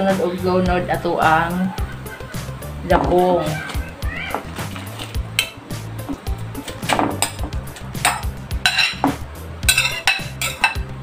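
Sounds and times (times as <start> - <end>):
background music: 0.0 - 11.0
metal spoon scraping ceramic plate: 8.0 - 10.8.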